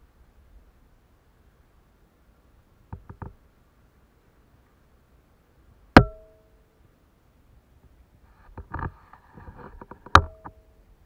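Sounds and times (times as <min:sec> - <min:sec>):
sharp knocks with ringing tone: 0:06.0 - 0:06.5.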